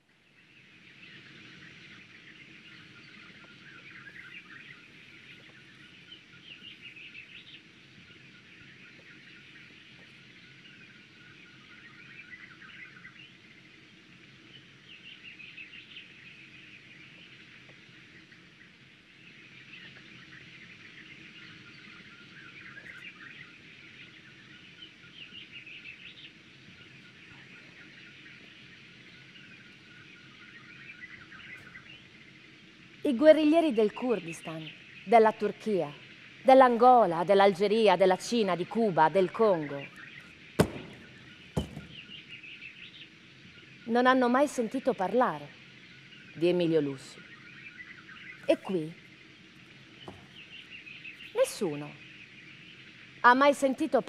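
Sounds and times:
many birds chirping: 0:00.0 - 0:54.0.

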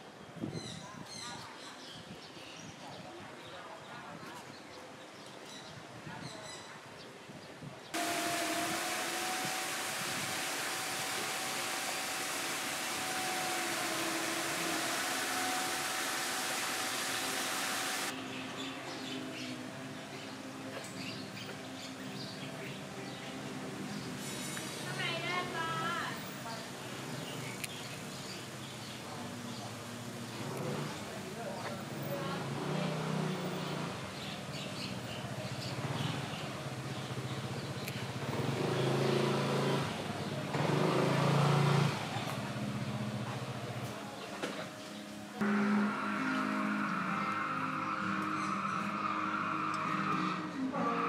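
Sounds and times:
small engine running: 0:08.0 - 0:18.1, 0:35.6 - 0:43.9
steady hiss with faint hum: 0:08.0 - 0:18.2
small birds chirping: 0:25.0 - 0:32.4, 0:33.4 - 0:41.0.

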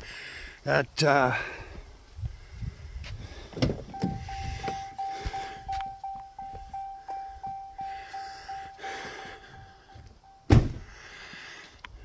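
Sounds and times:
repeating electronic chime: 0:03.9 - 0:10.5
footsteps: 0:04.0 - 0:08.0
sharp thump: 0:10.5 - 0:10.8.

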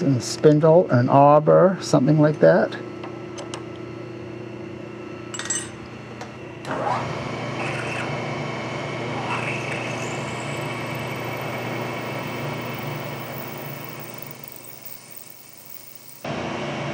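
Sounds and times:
milling machine motor hum: 0:02.8 - 0:16.9
high-pitched metal cutting whine: 0:08.9 - 0:16.3.

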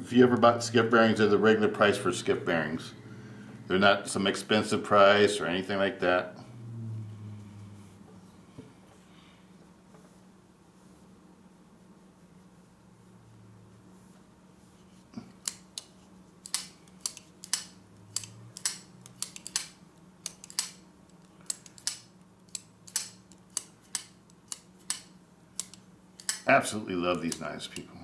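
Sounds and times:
folding knife clicking: 0:15.4 - 0:20.8, 0:21.5 - 0:26.5.

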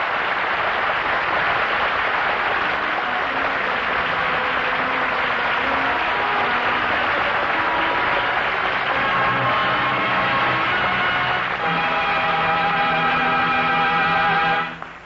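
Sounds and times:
studio audience applauding: 0:00.0 - 0:15.0
faint orchestral music: 0:00.2 - 0:15.0.

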